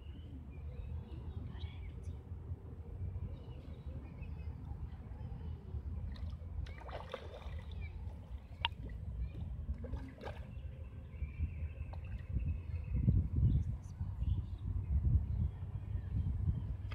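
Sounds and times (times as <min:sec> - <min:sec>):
fish splashing at water surface: 0:06.2 - 0:07.8.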